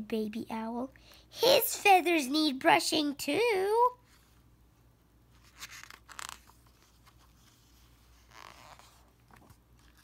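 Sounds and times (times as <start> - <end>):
book page turning: 5.3 - 10.0.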